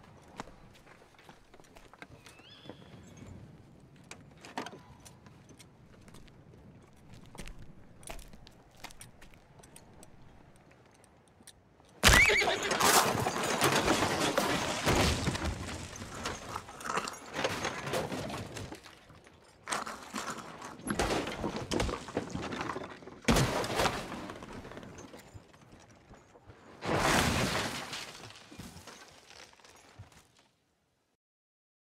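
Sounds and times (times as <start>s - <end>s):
horse whinnying: 12.0s - 13.6s
wooden cart crashing: 12.0s - 30.3s.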